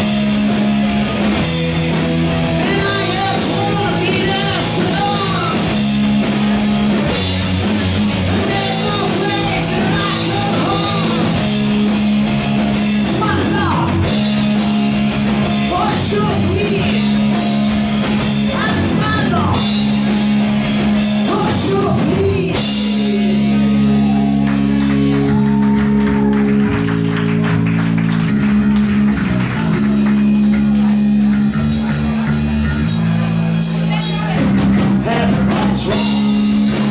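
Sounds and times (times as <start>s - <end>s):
drums: 0.0s - 36.9s
electric guitars and bass chords: 0.0s - 36.9s
rock band playing: 0.0s - 36.9s
person singing: 2.4s - 5.8s, 8.2s - 11.4s, 35.0s - 36.9s.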